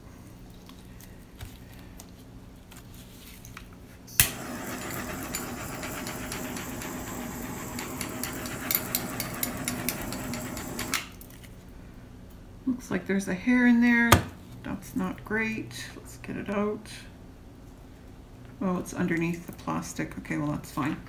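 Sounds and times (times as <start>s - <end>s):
steady hiss of flame: 4.2s - 11.0s
butane torch clicking on: 4.2s - 11.1s.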